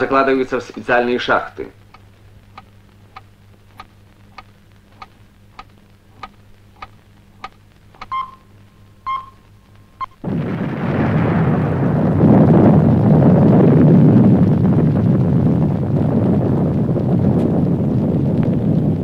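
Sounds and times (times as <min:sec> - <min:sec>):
steady ticking: 0:00.0 - 0:10.2
short beeps: 0:08.0 - 0:09.4
blast rumble: 0:10.2 - 0:19.0.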